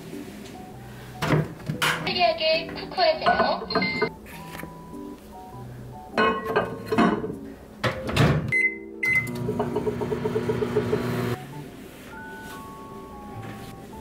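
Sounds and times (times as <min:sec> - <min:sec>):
appliance electric hum: 0:09.0 - 0:11.7.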